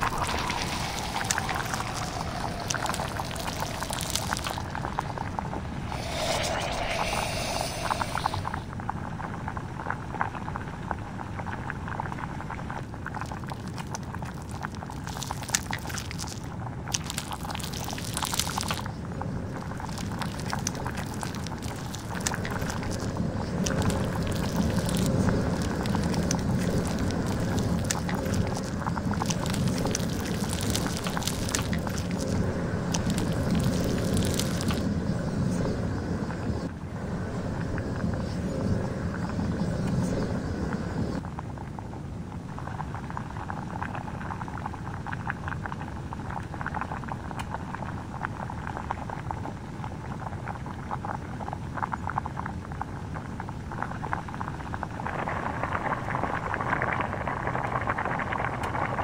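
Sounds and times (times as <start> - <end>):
flame rushing: 0.0 - 8.7, 13.3 - 35.0
plastic crackling and sizzling: 0.0 - 35.6, 53.2 - 59.0.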